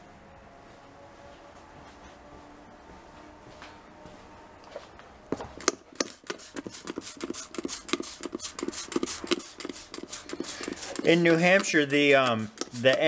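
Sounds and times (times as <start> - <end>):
spray bottle spritzes: 5.6 - 13.0.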